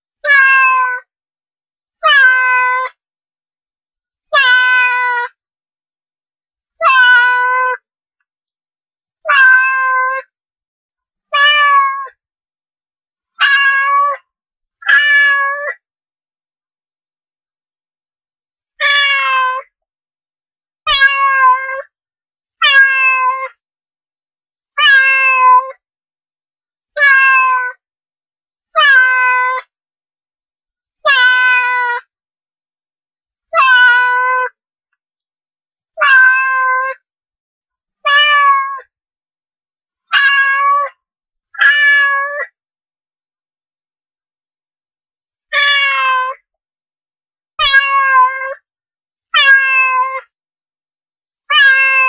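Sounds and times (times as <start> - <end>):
cat meowing: 0.2 - 1.1, 2.0 - 2.9, 4.3 - 5.3, 6.8 - 7.8, 9.3 - 10.3, 11.3 - 12.1, 13.4 - 14.2, 14.8 - 15.8, 18.8 - 19.7, 20.9 - 21.9, 22.6 - 23.6, 24.8 - 25.8, 27.0 - 27.8, 28.8 - 29.7, 31.0 - 32.0, 33.5 - 34.6, 36.0 - 37.0, 38.0 - 38.9, 40.1 - 41.0, 41.6 - 42.6, 45.5 - 46.4, 47.6 - 48.6, 49.4 - 50.3, 51.5 - 52.0.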